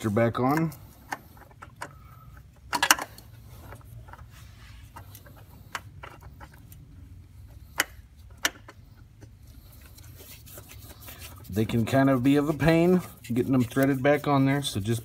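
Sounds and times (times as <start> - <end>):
low steady hum: 0.0 - 15.0
oil filter metallic clicks and rattle: 0.4 - 4.3, 4.9 - 9.4.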